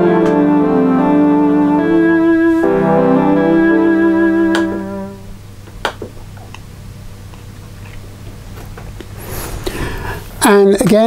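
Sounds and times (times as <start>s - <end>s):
synthesizer chord: 0.0s - 5.5s
low steady hum: 0.0s - 8.4s.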